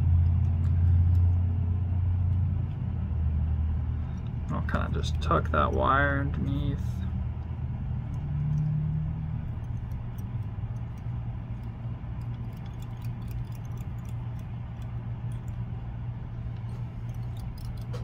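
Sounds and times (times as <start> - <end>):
small ticks and clicks of thread: 0.0 - 1.5, 7.4 - 15.7
steady low hum: 0.0 - 18.0.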